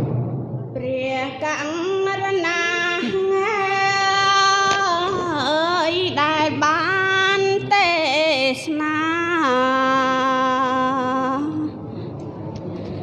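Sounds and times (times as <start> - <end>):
woman singing a chant: 0.8 - 11.8.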